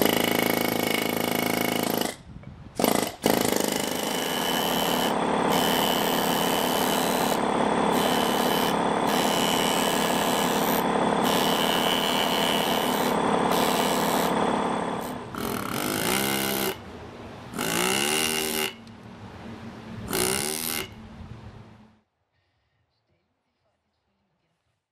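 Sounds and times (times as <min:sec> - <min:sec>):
air hammer chiselling stone: 0:00.0 - 0:02.2, 0:02.8 - 0:16.8, 0:17.5 - 0:18.8, 0:20.1 - 0:20.9.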